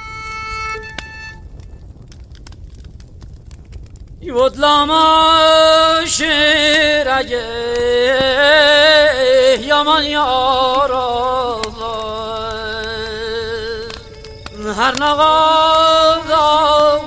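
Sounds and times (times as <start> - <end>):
slow mournful solo violin: 0.0 - 1.4, 12.4 - 17.0.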